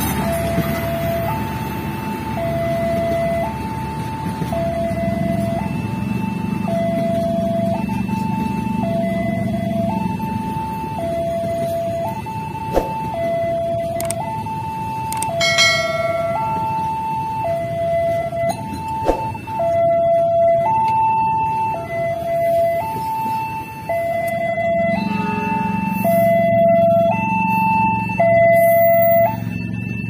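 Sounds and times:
train rumbling on rails: 0.0 - 10.8, 15.4 - 19.4
level-crossing two-tone alarm: 0.1 - 30.0.

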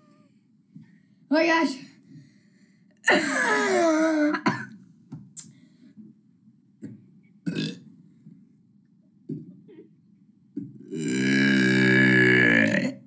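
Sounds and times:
boy burping: 7.5 - 7.8, 10.8 - 13.0.

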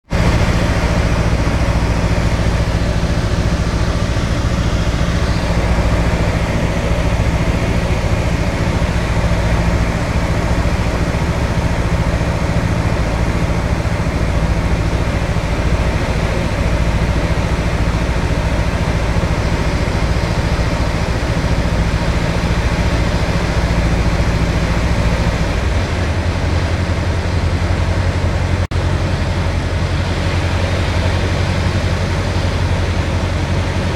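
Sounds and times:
light aircraft engine and propeller: 0.0 - 33.9.

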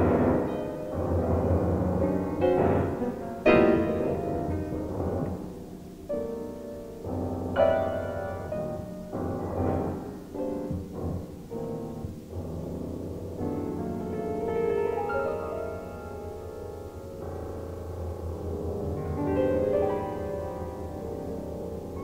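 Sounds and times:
solo grand piano: 0.0 - 22.0.

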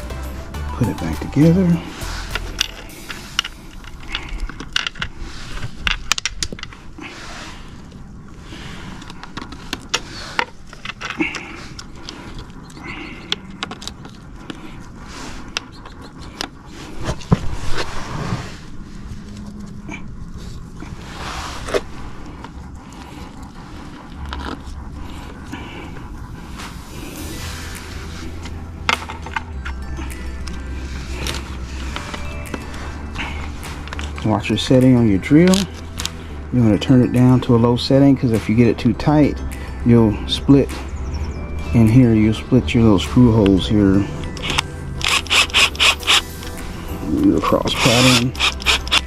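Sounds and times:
plastic parts clicking and scraping: 2.6 - 6.8, 8.9 - 17.9, 44.3 - 46.6, 47.5 - 49.0.

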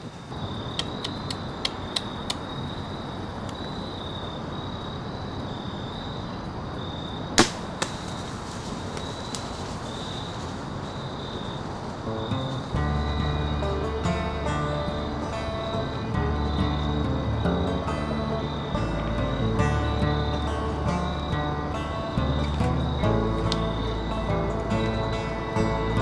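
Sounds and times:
insects pulsing: 0.0 - 26.0
crossbow firing crack: 7.4 - 9.6.

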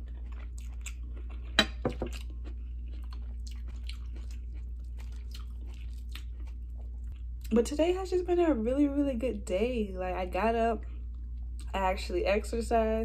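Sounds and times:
chewing and mouth noises: 0.0 - 7.6.

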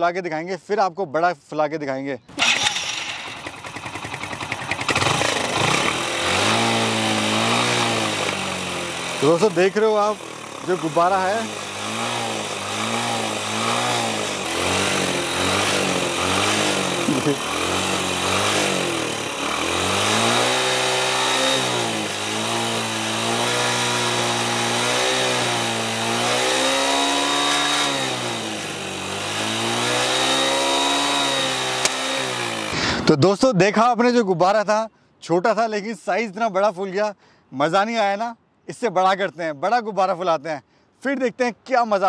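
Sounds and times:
motorcycle engine revving: 2.3 - 33.1.

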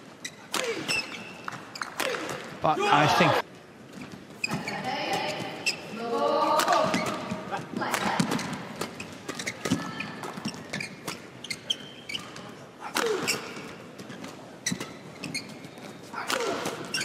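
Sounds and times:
shoes squeaking on court: 0.0 - 2.6, 3.6 - 17.0
rackets striking shuttlecock: 0.5 - 2.5, 12.2 - 13.8, 16.2 - 17.0.

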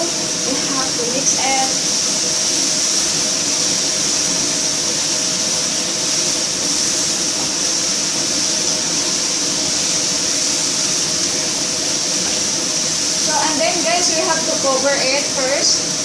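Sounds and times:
mushrooms and onions sizzling: 0.0 - 16.0.

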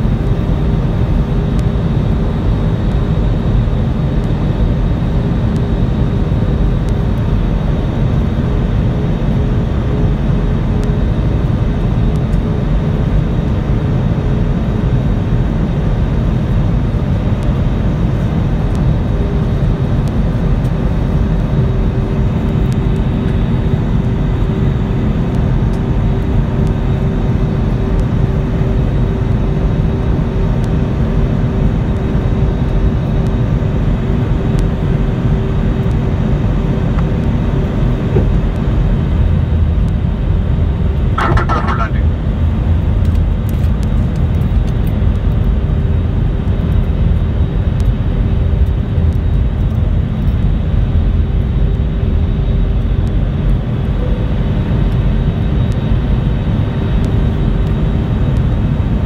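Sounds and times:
steady constant-pitch hum: 0.0 - 59.0
jet engines roaring: 40.4 - 42.5
airflow over fuselage: 41.2 - 42.4.

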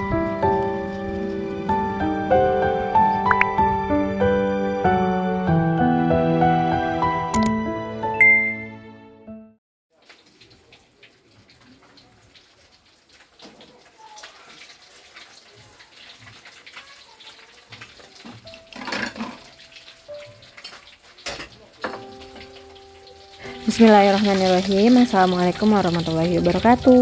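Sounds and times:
water running into sink: 10.0 - 27.0
dishes and utensils clinking: 18.2 - 22.7.

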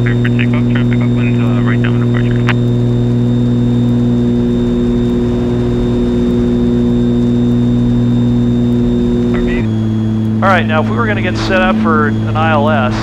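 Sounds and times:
faint high steady tone: 0.0 - 13.0
twin piston aircraft engines droning: 0.0 - 13.0.

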